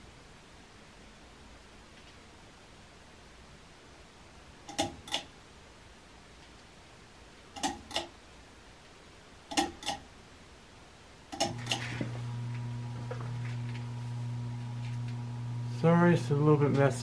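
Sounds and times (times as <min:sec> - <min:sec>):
fan motor hum: 0:11.3 - 0:17.0.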